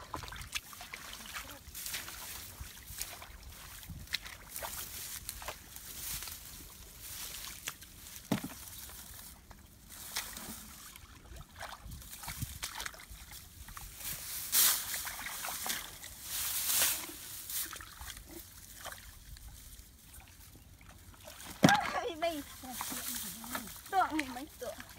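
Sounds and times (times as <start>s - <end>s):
water poured from buckets: 0.0s - 24.9s
water sloshing and splashing: 0.0s - 24.9s.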